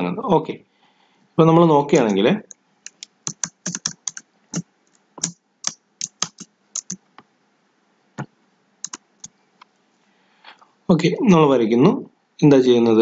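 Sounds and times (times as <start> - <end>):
computer keyboard keys clicking: 2.0 - 2.2, 2.8 - 4.2, 4.9 - 7.0, 8.8 - 9.3.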